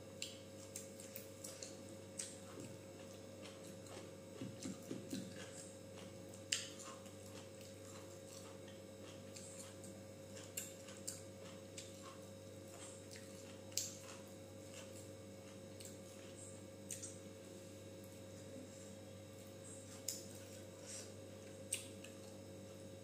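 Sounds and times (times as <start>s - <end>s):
faint steady hum: 0.0s - 23.0s.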